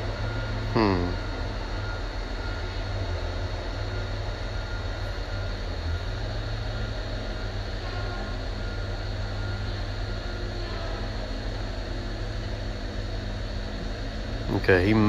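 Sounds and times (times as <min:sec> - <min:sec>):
engine low rumble: 0:00.0 - 0:15.0
faint high tones: 0:06.6 - 0:12.0.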